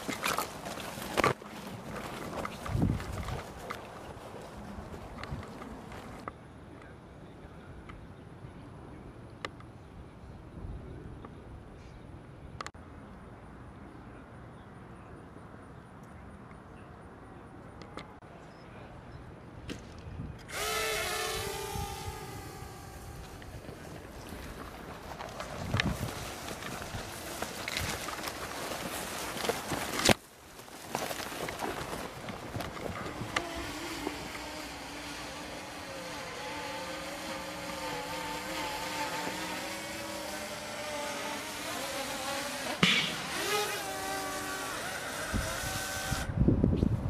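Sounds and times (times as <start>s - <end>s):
drone motor whining: 20.5s - 24.2s, 32.6s - 46.3s.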